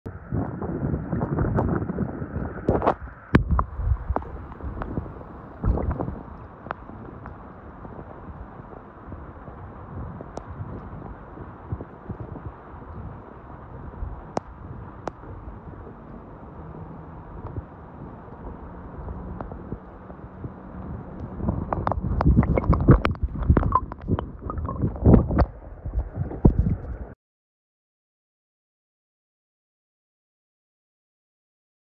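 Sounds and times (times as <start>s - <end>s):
shallow river gurgling and splashing: 1.0s - 26.6s
underwater knocks and clicks: 2.7s - 7.4s, 21.2s - 27.0s.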